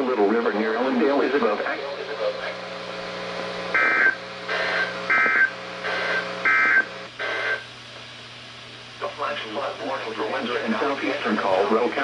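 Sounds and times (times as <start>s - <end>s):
digital data tone bursts: 3.8s - 7.6s.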